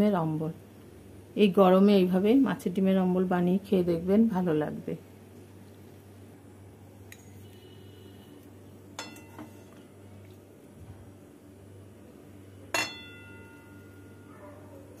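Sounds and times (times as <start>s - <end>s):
steady low hum: 0.0s - 15.0s
ladle clinking against cookware: 9.0s - 9.6s.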